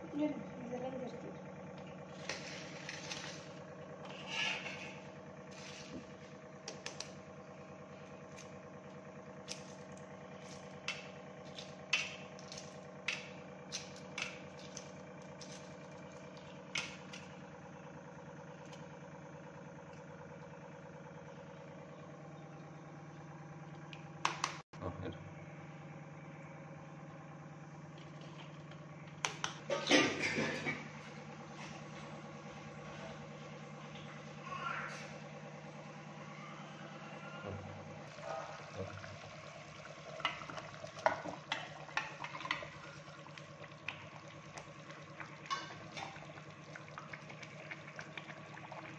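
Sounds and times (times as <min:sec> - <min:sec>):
steady mechanical hum: 0:00.0 - 0:48.9.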